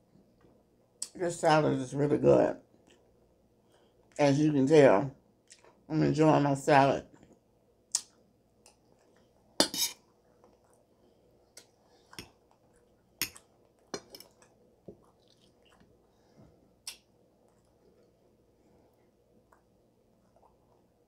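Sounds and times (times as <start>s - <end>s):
wet chewing: 11.5s - 18.2s.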